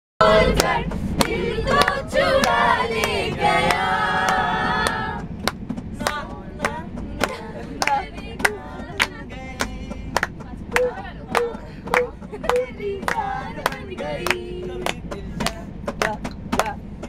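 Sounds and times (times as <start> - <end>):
group singing a chant: 0.2 - 5.3, 6.0 - 12.1, 12.8 - 16.7
sharp hand claps: 0.6 - 16.8.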